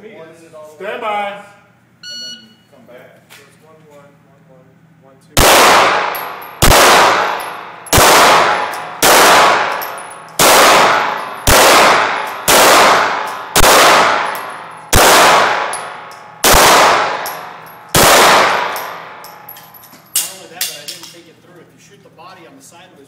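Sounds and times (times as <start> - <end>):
pistol shots with ringing echo: 5.4 - 20.8.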